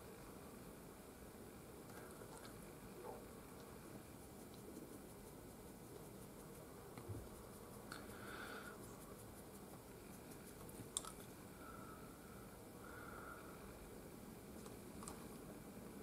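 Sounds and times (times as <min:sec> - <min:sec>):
faint paint brush strokes: 0:01.8 - 0:16.0
small clicks: 0:14.6 - 0:15.5.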